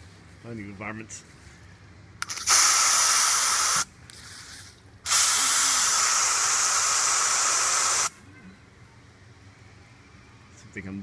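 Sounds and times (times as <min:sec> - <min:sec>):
aerosol spray hissing: 0:02.3 - 0:03.9, 0:05.1 - 0:08.1.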